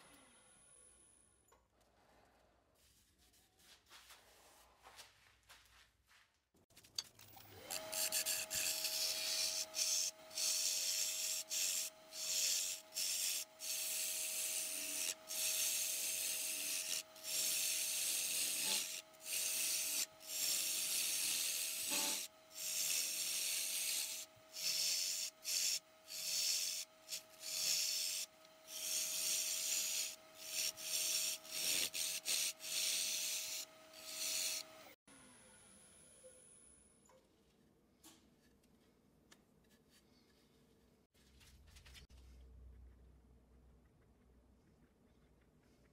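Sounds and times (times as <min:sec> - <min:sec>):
turning tool cutting wood: 0:07.2 - 0:35.0
wood lathe motor whine: 0:07.3 - 0:35.0.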